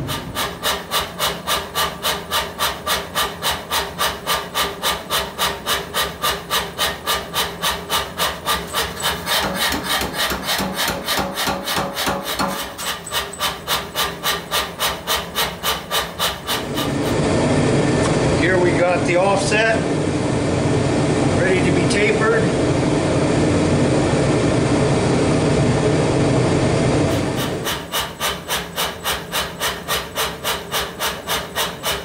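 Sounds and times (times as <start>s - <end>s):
power hammer striking steel: 0.0s - 17.2s, 27.1s - 32.0s.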